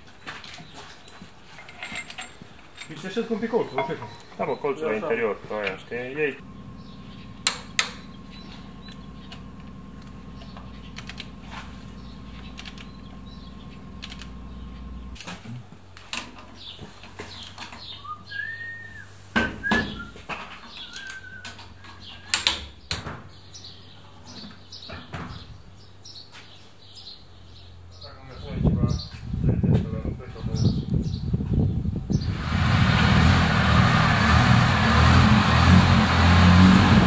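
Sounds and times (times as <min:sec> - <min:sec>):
birds chirping: 0:00.0 - 0:33.3
steady low hum: 0:05.3 - 0:16.0.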